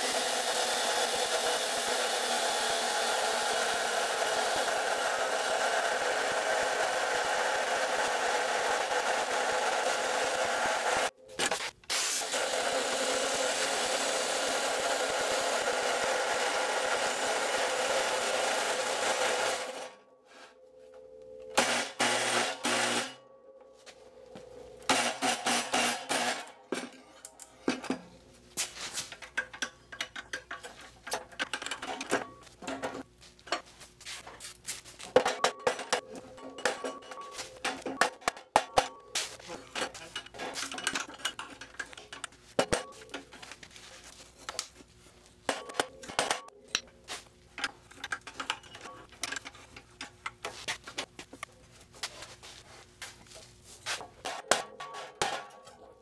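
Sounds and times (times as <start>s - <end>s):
chop saw grinding steel: 0.0s - 11.1s, 12.2s - 20.0s, 21.6s - 23.2s, 24.9s - 27.2s.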